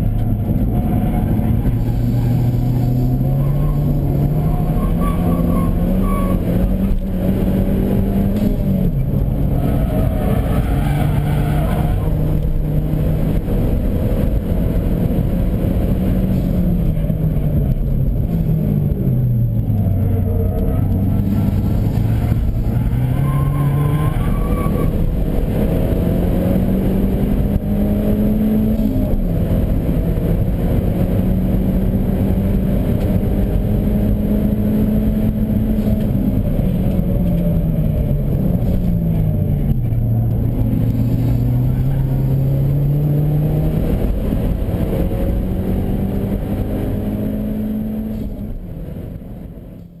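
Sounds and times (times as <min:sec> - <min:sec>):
car engine revving through gears: 0:00.0 - 0:50.0
road and wind noise: 0:00.0 - 0:50.0.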